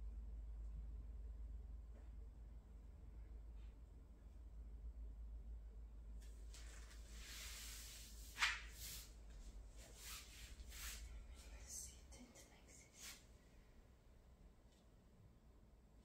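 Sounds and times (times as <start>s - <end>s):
rustling on foam mat: 6.2s - 11.7s, 12.8s - 13.3s.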